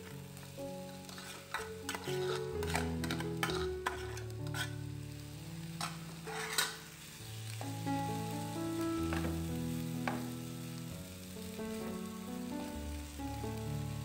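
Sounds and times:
rice sizzling in a pan: 0.0s - 14.0s
soft background music: 0.0s - 14.0s
wooden spoon knocking and scraping pan: 1.1s - 4.8s, 5.8s - 6.8s, 9.1s - 9.4s, 10.0s - 10.3s.

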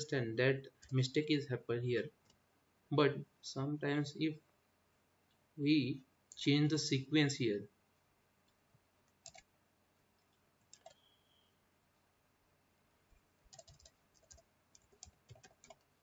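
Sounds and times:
keyboard keystrokes: 13.5s - 15.8s.

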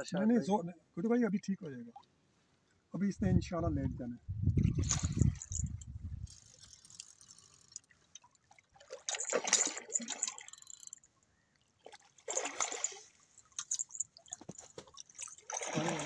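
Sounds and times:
fish splashing and thrashing in water: 4.8s - 11.1s, 11.8s - 16.0s.

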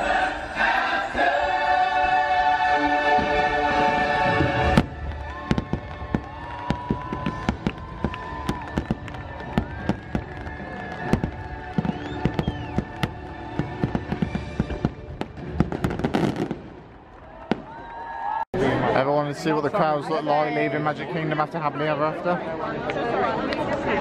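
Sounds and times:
fireworks bangs and crackles: 3.1s - 18.1s.

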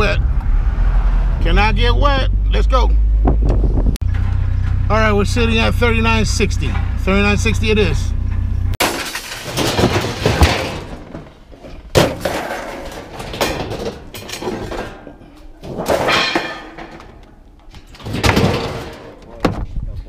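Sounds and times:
scrap metal crashing and rattling: 8.8s - 19.4s.

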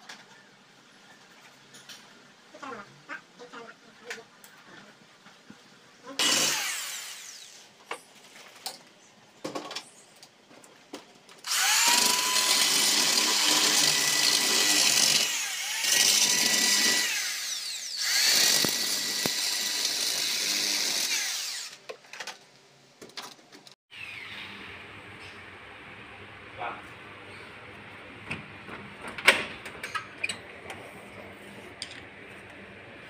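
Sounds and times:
cordless drill motor whine: 11.5s - 21.8s.

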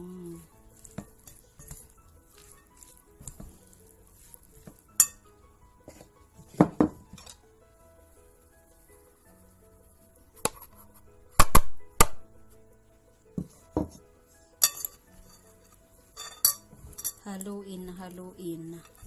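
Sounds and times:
metal spoon clinking against bowl: 0.8s - 3.5s, 4.2s - 5.2s, 14.6s - 15.5s, 16.2s - 17.4s.

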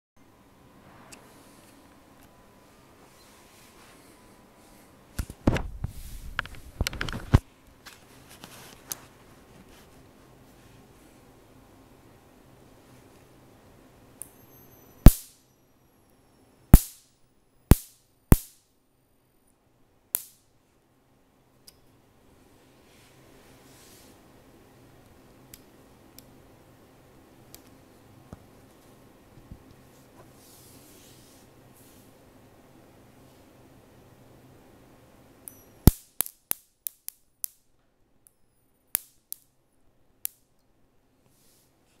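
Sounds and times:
faint high-pitched whine: 0.2s - 42.0s
high-voltage spark snaps: 15.0s - 15.4s, 16.7s - 18.7s, 20.1s - 20.5s, 35.4s - 37.7s, 38.9s - 39.6s, 40.2s - 40.5s.

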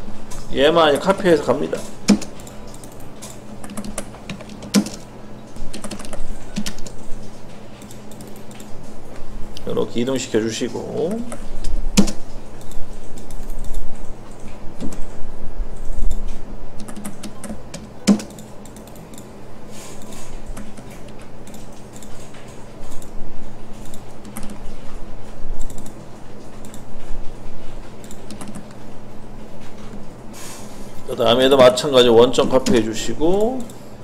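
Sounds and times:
steady low hum: 0.0s - 34.0s
keyboard keystrokes and clicks: 2.1s - 8.8s, 15.8s - 19.3s, 23.8s - 24.6s, 25.6s - 27.1s, 28.0s - 28.8s.

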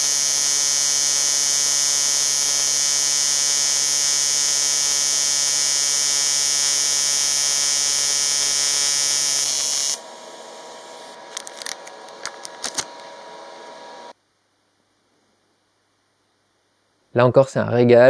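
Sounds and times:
welding arc buzz: 0.0s - 14.2s.

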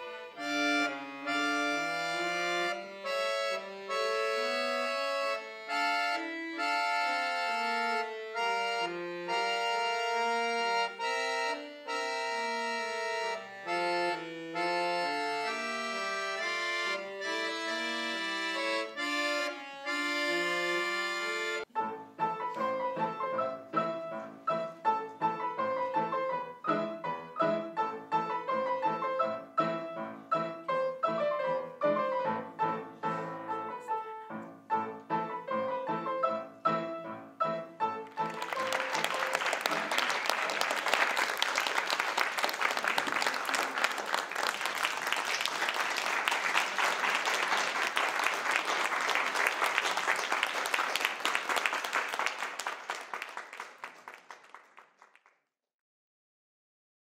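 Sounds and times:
piano duet: 0.0s - 54.0s
audience applause: 38.0s - 55.4s.

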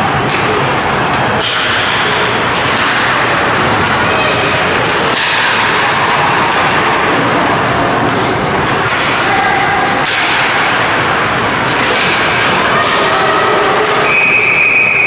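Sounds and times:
skates and arena noise: 0.0s - 15.0s
stick hitting puck: 1.4s - 7.2s, 8.5s - 10.9s, 11.6s - 13.2s.

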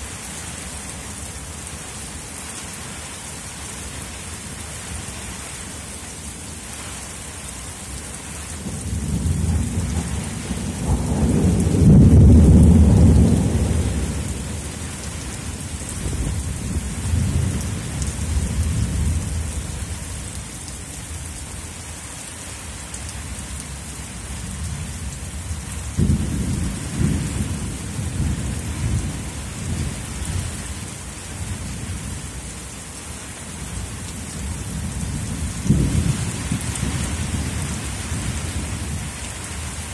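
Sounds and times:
steady rain: 0.0s - 39.9s
thunder rumbling: 8.6s - 14.8s, 25.9s - 30.6s, 34.5s - 39.2s.

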